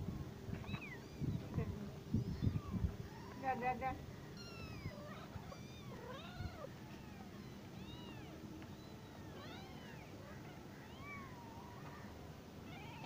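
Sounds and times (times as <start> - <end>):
kittens mewing: 2.2 - 3.6, 4.2 - 13.0.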